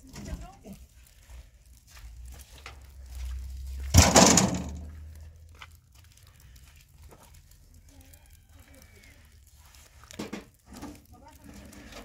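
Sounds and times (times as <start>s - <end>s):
steel sheet crashing on ground: 3.9s - 5.0s, 10.1s - 12.0s.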